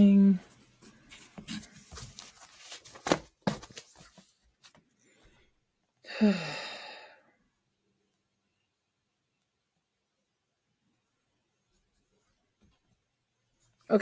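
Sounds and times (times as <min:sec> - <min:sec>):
person sighing: 0:06.0 - 0:07.4.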